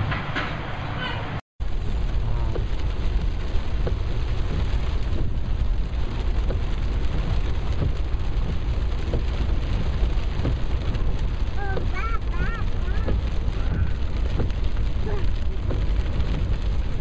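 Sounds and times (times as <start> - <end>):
road and tyre noise: 0.0 - 17.0
rain pelting car windscreen: 1.6 - 17.0.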